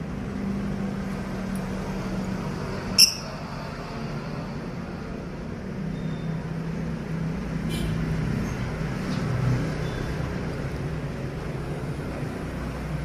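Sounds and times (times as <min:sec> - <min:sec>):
birds chirping: 0:02.9 - 0:03.4.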